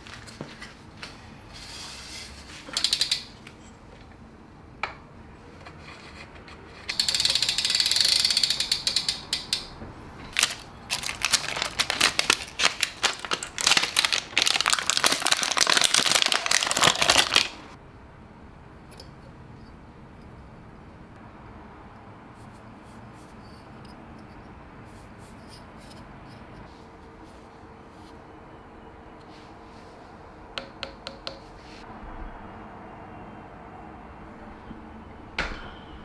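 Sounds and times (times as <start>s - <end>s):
bike freewheel ratchet clicking: 2.7s - 3.4s, 6.9s - 9.7s.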